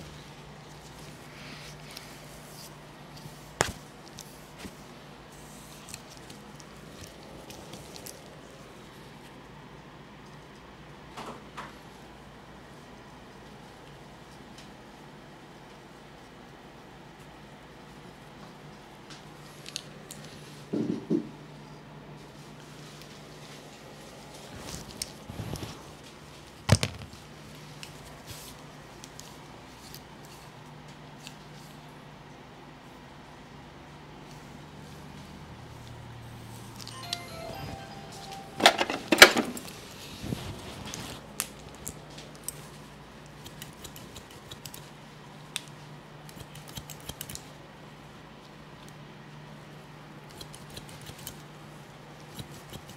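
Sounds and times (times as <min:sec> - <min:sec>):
shears snipping hair: 0:40.9 - 0:47.6, 0:50.3 - 0:51.5, 0:52.2 - 0:52.9.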